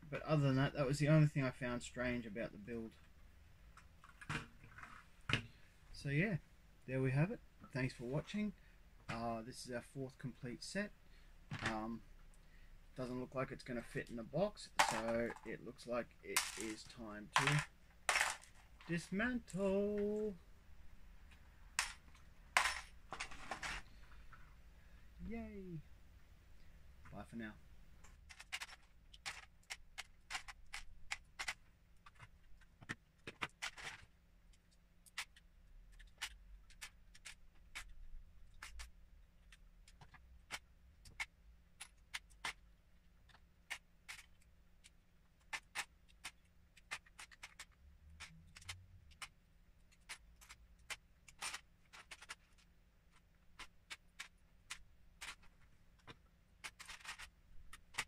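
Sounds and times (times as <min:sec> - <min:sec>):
plastic bricks clicking and clattering: 0:14.6 - 0:15.6, 0:16.2 - 0:20.3, 0:21.8 - 0:23.9, 0:28.0 - 0:58.0.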